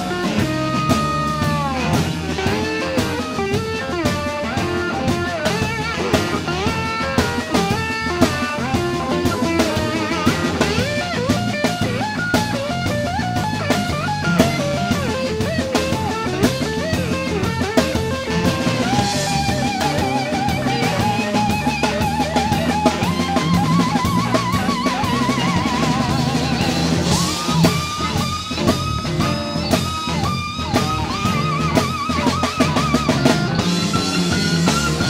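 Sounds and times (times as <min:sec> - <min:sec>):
drum-kit beat: 0:00.0 - 0:35.0
electric guitar lead: 0:00.0 - 0:35.0.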